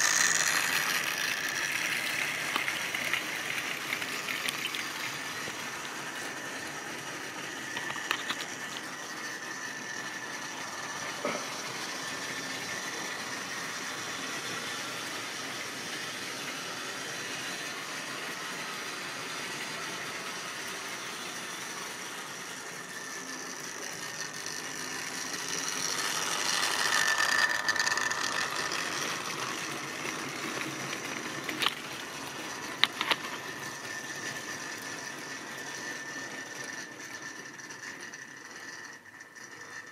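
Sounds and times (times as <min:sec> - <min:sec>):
model train motor whine: 0:00.0 - 0:39.9.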